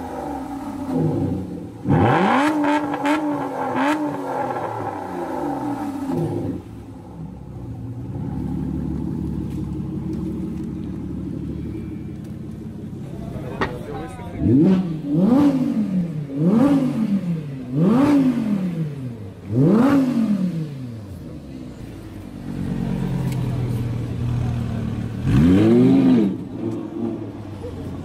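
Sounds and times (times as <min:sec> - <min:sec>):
car engine revving and idling: 0:00.0 - 0:28.0.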